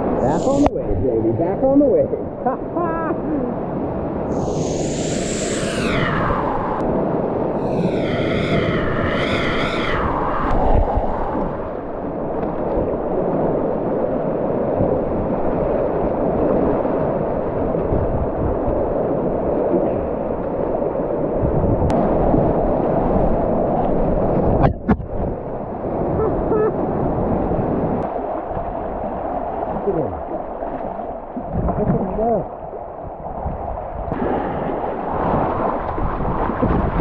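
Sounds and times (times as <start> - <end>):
person whooping: 4.3 - 6.8, 7.6 - 11.8.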